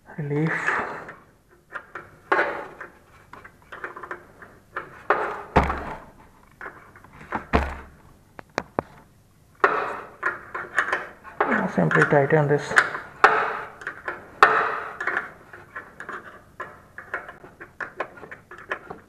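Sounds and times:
dull thumps: 5.1 - 6.3, 7.2 - 8.7
spanner clicking and scraping on metal: 9.6 - 19.0.

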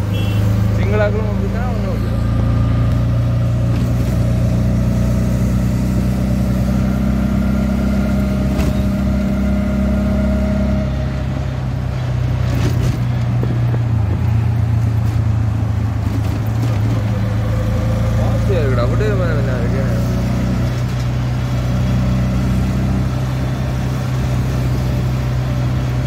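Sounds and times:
auto-rickshaw engine running: 0.0 - 26.0
road noise: 0.0 - 26.0.

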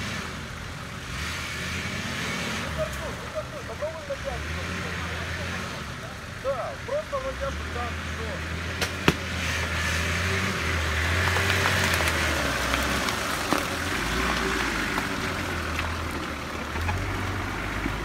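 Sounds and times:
off-road vehicle engine at low revs: 0.0 - 18.0
vegetation rustling against vehicle: 2.6 - 18.0
twigs snapping: 11.0 - 16.0.

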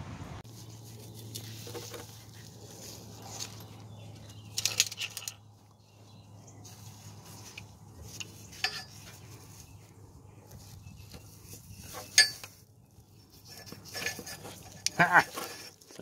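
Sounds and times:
clicks and clinks of hand tools: 12.0 - 12.6.

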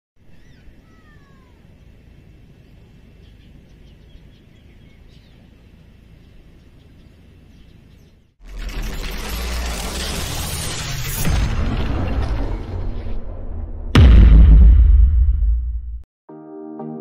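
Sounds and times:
bird calls: 0.2 - 2.0, 2.6 - 8.3.

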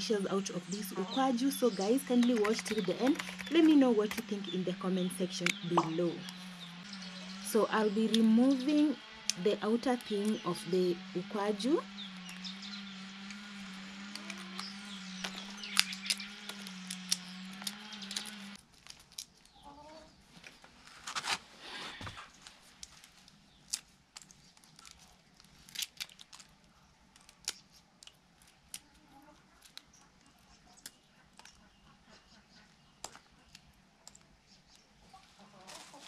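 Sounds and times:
steady hum: 0.0 - 18.6
pod shells cracking: 1.9 - 4.3, 13.2 - 19.7, 22.8 - 30.1, 33.0 - 34.4
chickens clucking: 30.0 - 33.6, 35.0 - 36.0.

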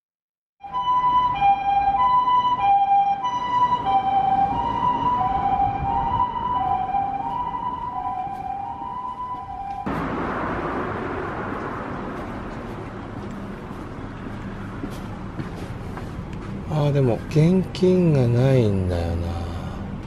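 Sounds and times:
ambulance two-tone siren: 0.6 - 11.6
low rumble of vehicle: 0.6 - 20.0.

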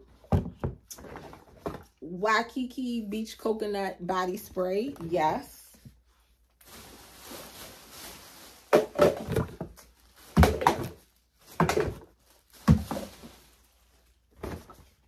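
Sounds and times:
plastic bottles clattering: 0.0 - 2.0, 6.7 - 13.6, 14.3 - 15.0
rustling inside tote bag: 4.7 - 8.8.

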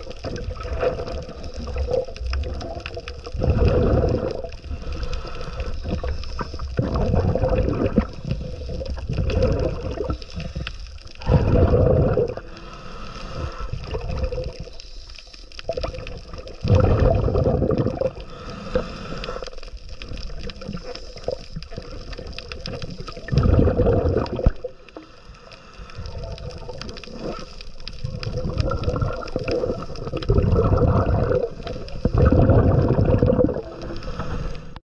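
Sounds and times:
gurgling exhaled bubbles: 0.0 - 12.6, 13.3 - 14.8, 15.6 - 25.1, 25.9 - 34.7
diver breathing through regulator: 3.4 - 15.6, 16.8 - 19.8, 24.9 - 27.7, 29.4 - 34.8.

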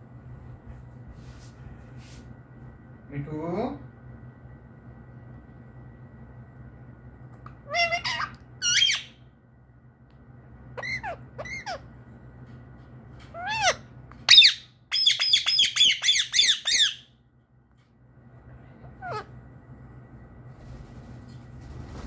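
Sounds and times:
parakeet calling: 7.6 - 9.2, 10.8 - 11.9, 13.3 - 17.1, 18.8 - 19.3
parakeet sharp squawks: 7.7 - 9.2, 10.8 - 11.9, 13.4 - 17.1.

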